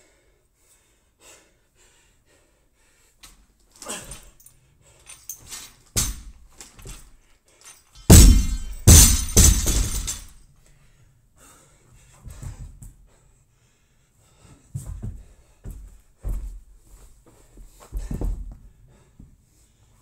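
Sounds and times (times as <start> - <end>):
barbell crashing onto rubber floor: 8.1 - 10.3.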